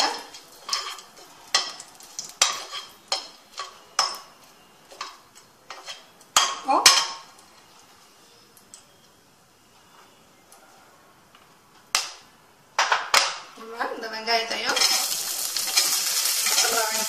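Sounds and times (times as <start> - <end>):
spoon scraping spices in pan: 0.2 - 7.2, 14.4 - 17.0.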